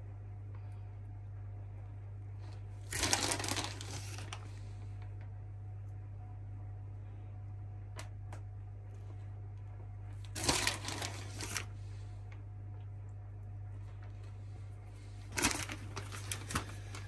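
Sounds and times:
steady low hum: 0:00.0 - 0:17.0
cheese rustling and pattering: 0:02.4 - 0:04.7, 0:10.2 - 0:12.1, 0:13.8 - 0:17.0.

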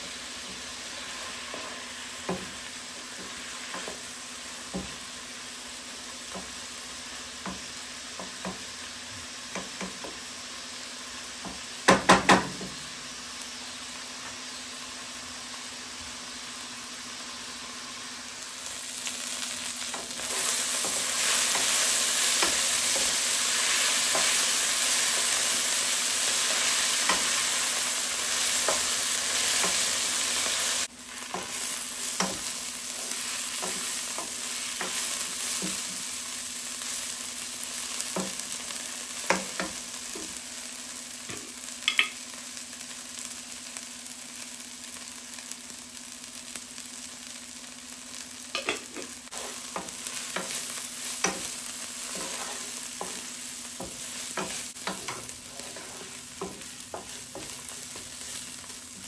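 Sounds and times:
food sizzling in a pan: 0:00.0 - 0:59.0
spoon scraping a pan: 0:48.6 - 0:58.4.

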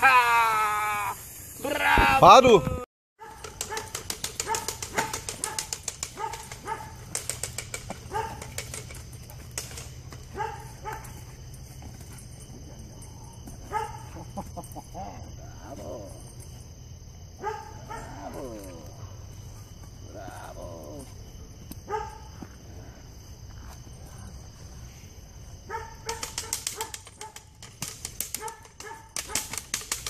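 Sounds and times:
dog barking: 0:03.2 - 0:07.1, 0:08.0 - 0:08.6, 0:10.3 - 0:11.2, 0:13.6 - 0:14.3, 0:17.4 - 0:19.2, 0:21.9 - 0:22.3, 0:25.7 - 0:27.4, 0:28.4 - 0:29.5
sharp clicks: 0:26.1 - 0:30.0.

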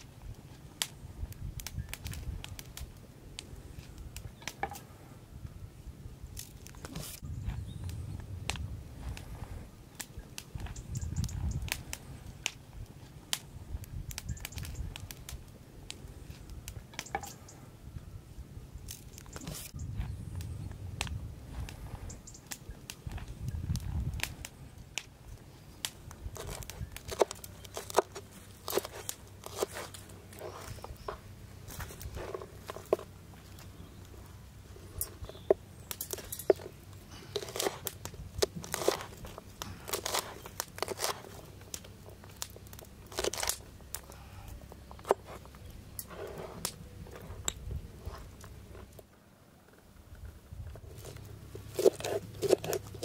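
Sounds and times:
peppers crunching: 0:06.3 - 0:09.4, 0:18.8 - 0:49.0, 0:50.6 - 0:53.0.

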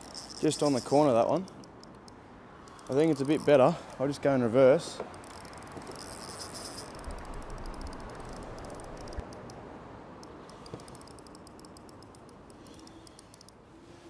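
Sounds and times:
fishing reel ticking: 0:00.0 - 0:02.0, 0:02.6 - 0:03.7, 0:05.1 - 0:09.6, 0:10.2 - 0:13.6.

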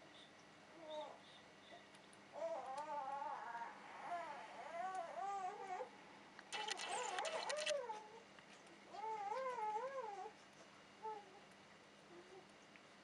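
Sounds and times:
rapid rattle of clicks: 0:06.5 - 0:07.7.

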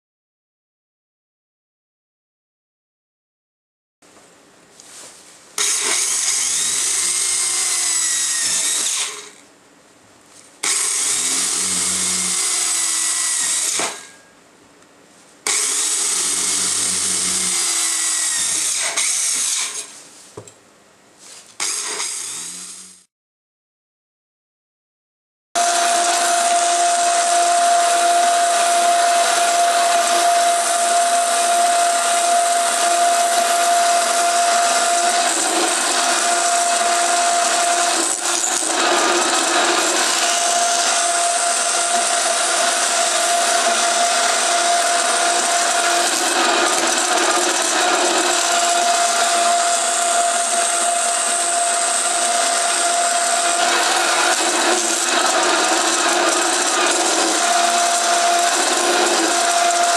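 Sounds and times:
band saw cutting metal: 0:05.6 - 0:09.4, 0:10.6 - 0:14.2, 0:15.5 - 0:20.0, 0:21.6 - 0:23.1, 0:25.6 - 0:59.9.

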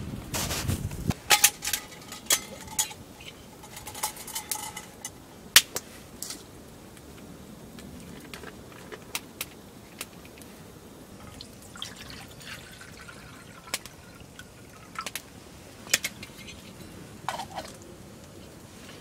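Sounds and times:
water pouring into metal pot: 0:11.2 - 0:15.2.

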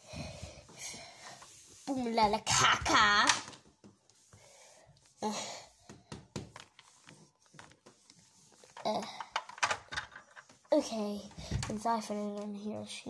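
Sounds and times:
plastic toys knocking and rubbing: 0:02.6 - 0:04.0, 0:05.8 - 0:12.6.

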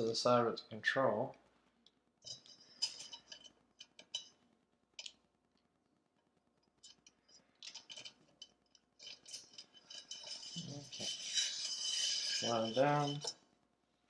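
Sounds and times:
metallic clicks of small parts: 0:01.8 - 0:04.4, 0:05.0 - 0:05.2, 0:06.8 - 0:13.4.

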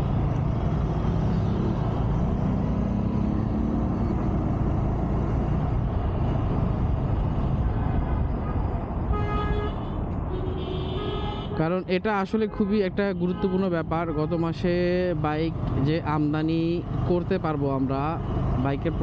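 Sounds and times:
motorcycle engine: 0:00.0 - 0:06.8
wind and road noise: 0:00.0 - 0:19.0
vehicle horn: 0:08.4 - 0:11.7.

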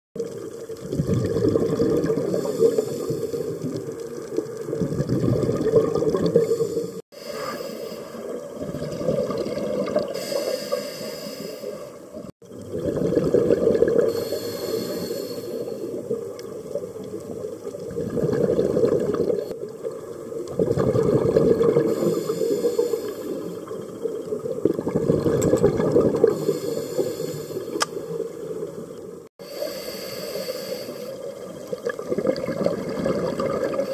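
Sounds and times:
regulator hissing inhalations: 0:02.3 - 0:03.6, 0:06.4 - 0:08.3, 0:10.1 - 0:12.0, 0:14.1 - 0:15.9, 0:21.9 - 0:23.6, 0:26.3 - 0:28.0, 0:29.4 - 0:31.2
rumbling exhaust bubbles: 0:20.5 - 0:22.0.

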